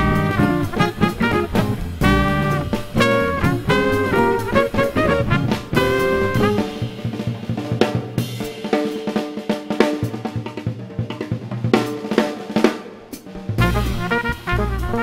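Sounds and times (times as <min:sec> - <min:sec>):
trumpet phrase: 0:00.0 - 0:07.1, 0:13.6 - 0:15.0
drum kit hits: 0:00.0 - 0:15.0
swing jazz combo: 0:00.0 - 0:15.0.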